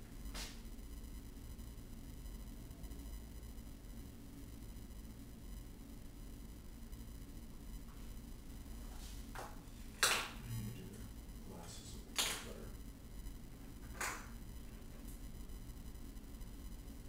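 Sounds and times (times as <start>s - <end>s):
sharp taps and clicks: 12.2s - 12.5s, 13.8s - 14.3s.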